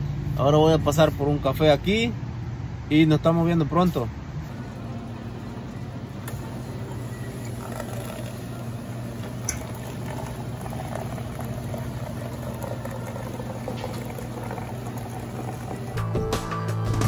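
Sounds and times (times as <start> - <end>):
coffee machine hum: 4.3 - 17.0
coffee pouring into a paper cup: 4.5 - 16.1
coffee machine click: 9.2 - 9.9.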